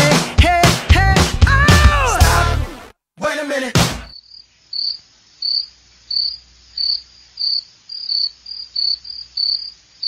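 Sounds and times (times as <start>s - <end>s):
cricket chirping: 4.1s - 10.0s.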